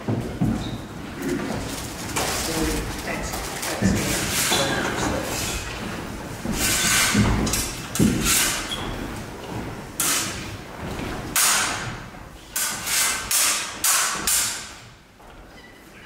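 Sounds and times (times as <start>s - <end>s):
feet scuffing wooden floor: 3.8s - 11.2s.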